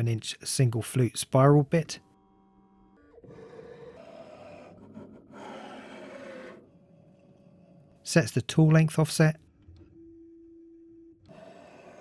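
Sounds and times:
quiet mechanical whirring: 9.5 - 12.0
multi-tone motor whine: 9.9 - 12.0.

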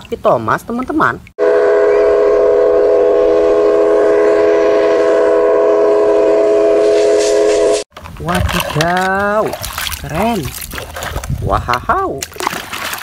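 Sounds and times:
steam locomotive whistle chord: 1.4 - 7.9.

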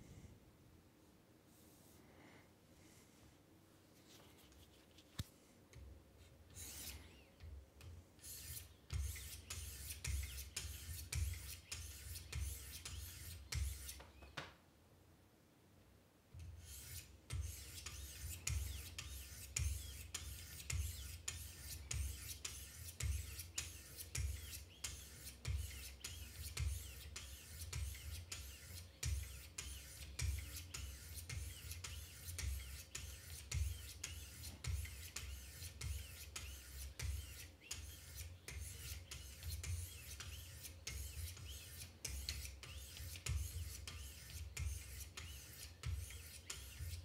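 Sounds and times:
sharpening stones rasping on knife: 16.6 - 47.0.

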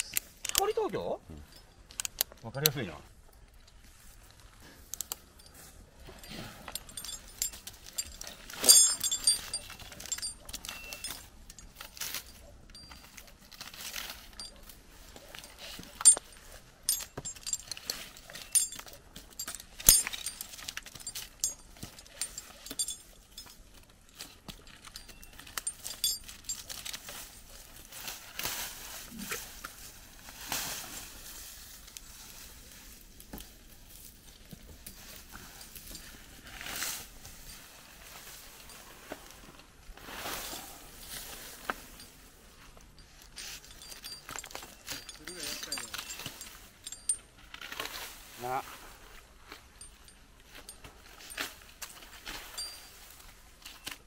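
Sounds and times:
metal hardware jangling: 0.0 - 2.9, 4.9 - 27.8, 40.9 - 47.7, 49.7 - 54.0.

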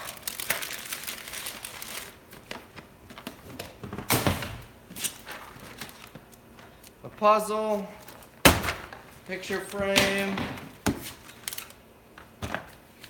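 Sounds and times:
paper bag crinkling: 0.0 - 2.6.

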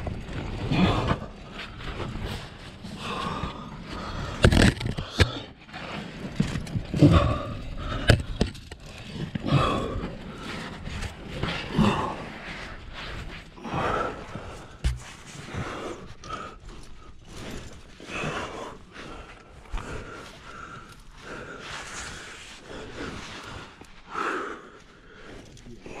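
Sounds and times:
heavy breathing: 0.3 - 26.0
sharp knocks: 14.8 - 15.1.

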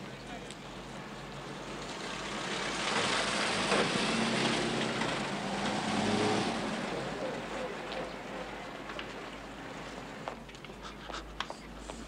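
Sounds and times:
road noise: 0.0 - 12.0
vehicle engine: 1.2 - 10.0.

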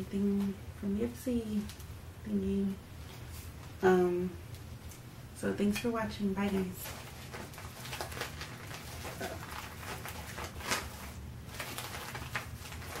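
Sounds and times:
low room hum: 0.0 - 13.0
packaging rustling and clicking: 6.5 - 13.0.

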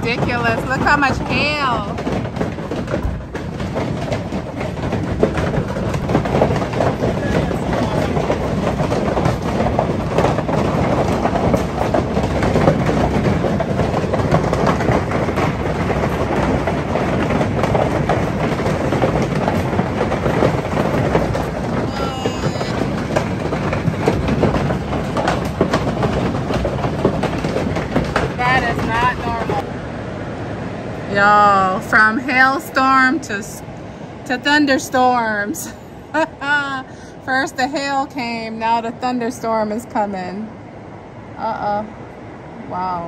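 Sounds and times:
hail on a metal roof: 0.0 - 29.6.

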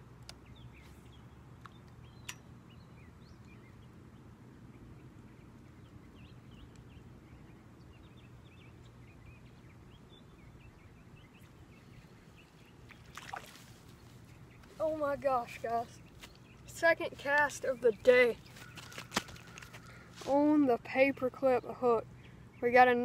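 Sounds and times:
bird chirps: 0.4 - 4.0.

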